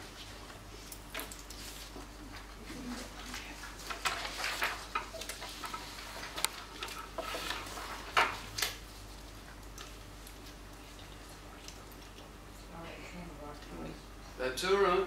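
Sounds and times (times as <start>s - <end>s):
papers being handled: 0.0s - 10.6s.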